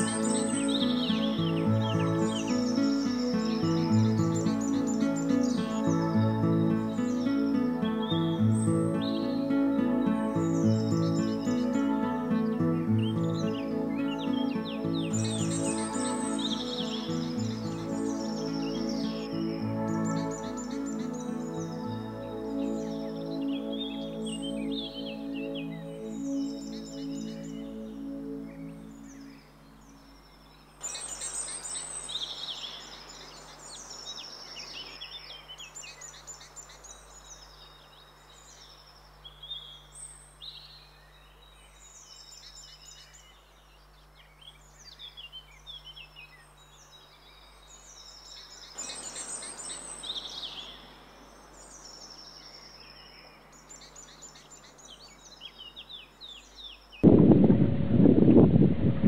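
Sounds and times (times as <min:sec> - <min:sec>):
songbirds chirping and trilling: 0:00.0 - 0:57.1.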